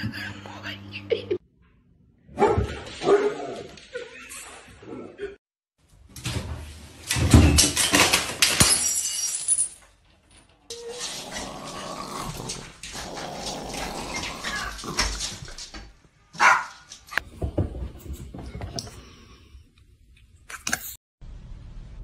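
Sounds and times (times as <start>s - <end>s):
small dog growling: 10.8s - 15.6s
small dog barking: 16.4s - 16.8s.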